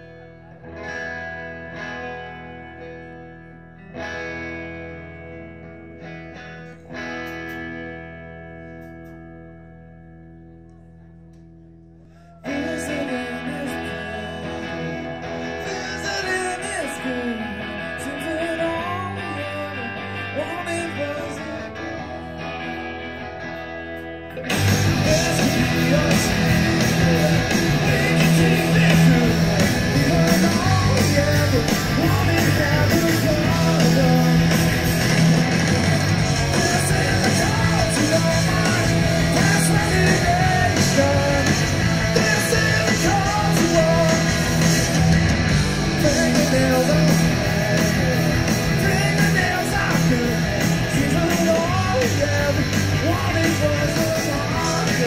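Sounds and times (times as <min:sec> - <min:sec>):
live rock band playing: 0:00.0 - 0:09.8, 0:12.5 - 0:55.0
distorted electric guitar: 0:00.0 - 0:55.0
person singing: 0:12.0 - 0:22.7, 0:24.3 - 0:44.9, 0:45.6 - 0:55.0.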